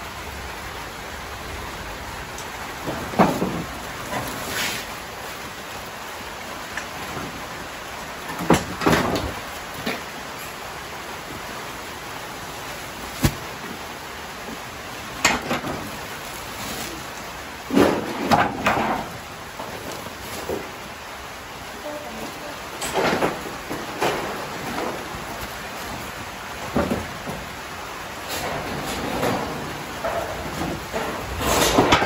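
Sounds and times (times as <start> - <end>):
rain hissing: 0.0 - 32.0
plastic sacks rustling: 12.3 - 21.1.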